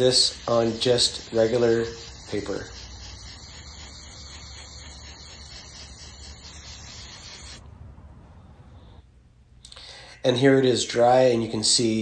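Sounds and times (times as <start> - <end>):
aerosol can spraying: 0.0 - 7.6.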